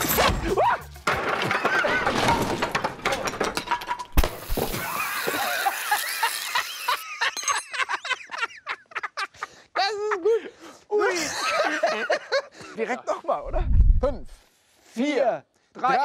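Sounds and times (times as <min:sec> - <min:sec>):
beer spraying and hissing: 0:04.3 - 0:07.2.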